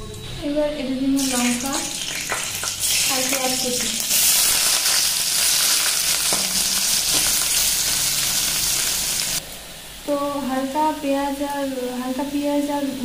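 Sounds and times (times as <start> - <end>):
onion sizzling in hot oil: 1.2 - 9.7.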